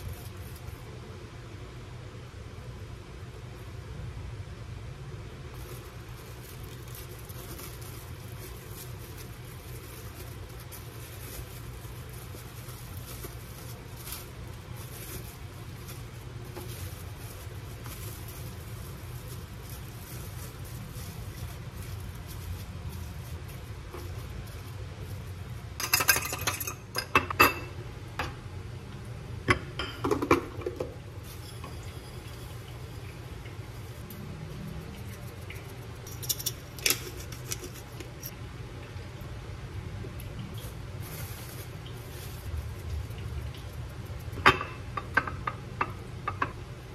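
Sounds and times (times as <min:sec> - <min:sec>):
steady low hum: 0:00.0 - 0:46.9
cling film crinkling: 0:05.5 - 0:25.8, 0:40.5 - 0:44.4.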